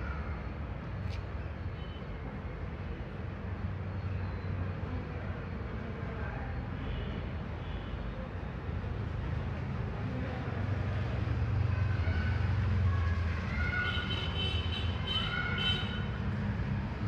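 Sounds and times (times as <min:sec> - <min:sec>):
faint click: 0:01.0 - 0:01.3.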